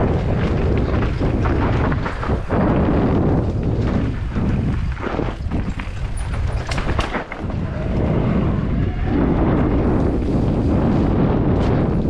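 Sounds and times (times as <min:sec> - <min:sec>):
off-road bike rumble and rattles: 0:00.0 - 0:12.0
wind buffeting microphone: 0:00.0 - 0:12.0.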